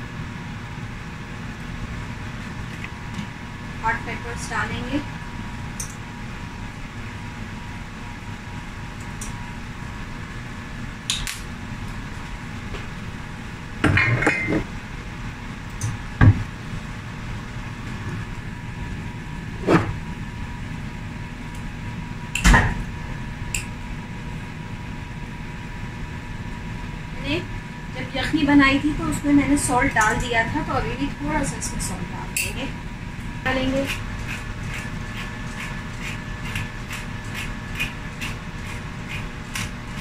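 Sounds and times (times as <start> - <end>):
background hum: 0.0 - 40.0
kitchenware clinking: 13.9 - 14.7.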